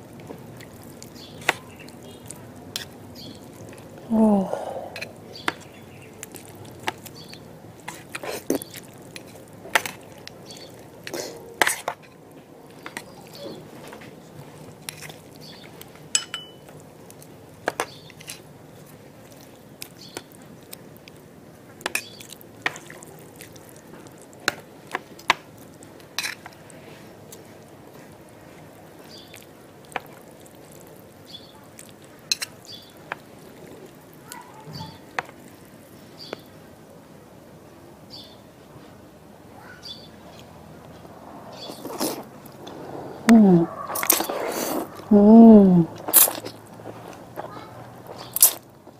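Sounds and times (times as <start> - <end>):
utensils clinking on metal tray: 16.1 - 16.7
noodles squelching: 21.8 - 35.7, 43.5 - 45.2.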